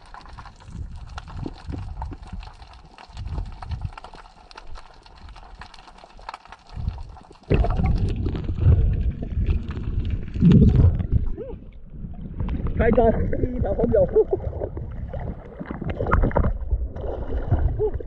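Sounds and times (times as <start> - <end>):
faint crackling clicks underwater: 0.0 - 13.2, 14.4 - 18.0
water rushing and gurgling: 7.4 - 18.0.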